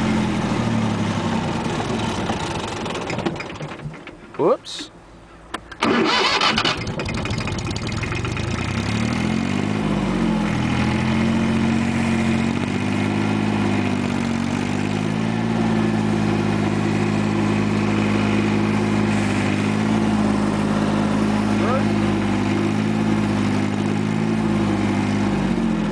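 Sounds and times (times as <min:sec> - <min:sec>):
tractor diesel engine running: 0:00.0 - 0:25.9
starter motor cranking: 0:05.7 - 0:08.6.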